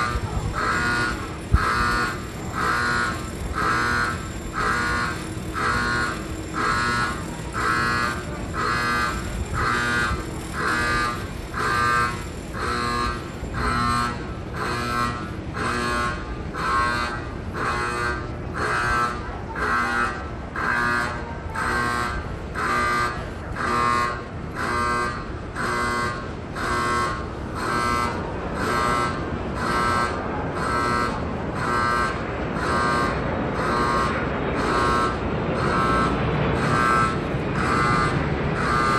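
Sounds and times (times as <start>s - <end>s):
alarm beeping: 0.0s - 38.9s
train rumbling into platform: 0.0s - 38.9s.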